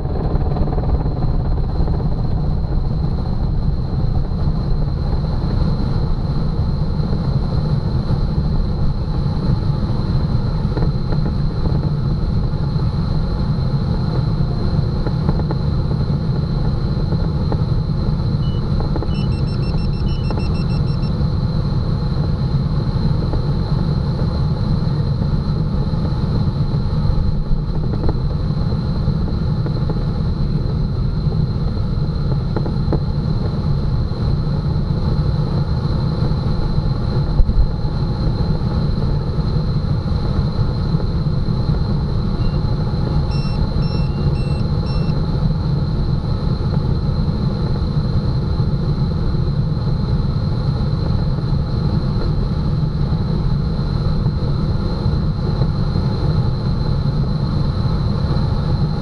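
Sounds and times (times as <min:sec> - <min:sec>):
electronic beeps: 0:18.4 - 0:21.2, 0:42.4 - 0:42.6, 0:43.2 - 0:45.2.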